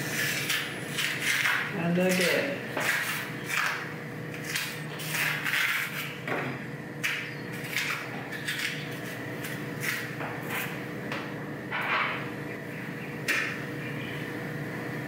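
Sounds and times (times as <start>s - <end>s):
plantain peel scraping: 0.0s - 6.2s, 7.0s - 10.8s.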